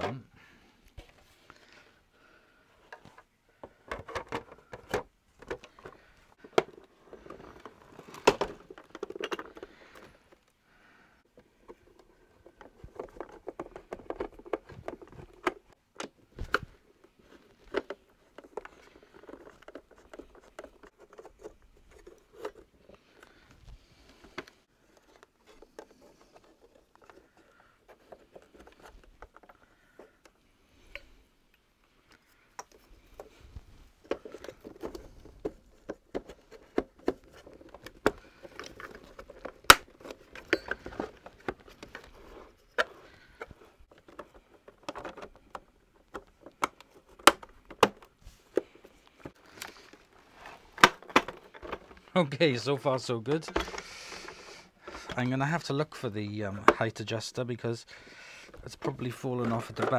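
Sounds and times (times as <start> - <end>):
plastic parts clicking and scraping: 2.6 - 10.6, 11.2 - 59.9
hand tools handled on workbench: 32.6 - 52.1.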